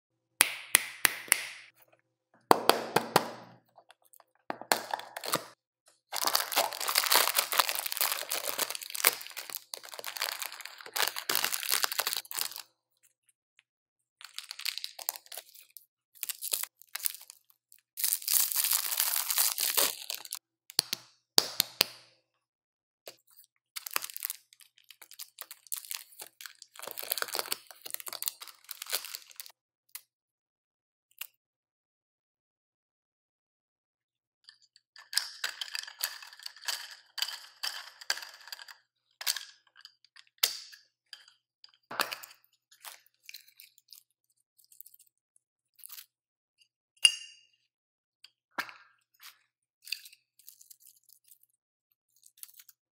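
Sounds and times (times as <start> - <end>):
candy wrappers crinkling: 3.8 - 12.7, 14.2 - 20.4, 23.3 - 29.5, 35.0 - 40.0, 52.1 - 52.8.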